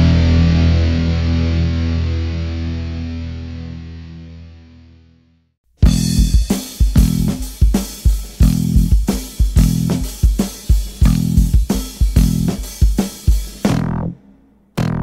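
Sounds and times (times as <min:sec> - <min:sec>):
electric guitar: 0:00.0 - 0:06.4
bass guitar: 0:00.0 - 0:07.6, 0:08.4 - 0:10.3, 0:10.9 - 0:12.9, 0:13.5 - 0:14.2, 0:14.8 - 0:15.0
steady drum beat: 0:05.8 - 0:13.8.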